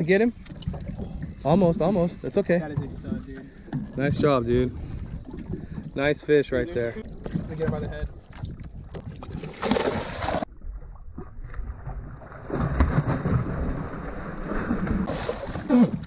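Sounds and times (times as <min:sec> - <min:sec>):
water sloshing against boat: 0:00.0 - 0:11.3, 0:14.6 - 0:16.0
fish thrashing and splashing: 0:09.0 - 0:10.5, 0:12.2 - 0:16.0.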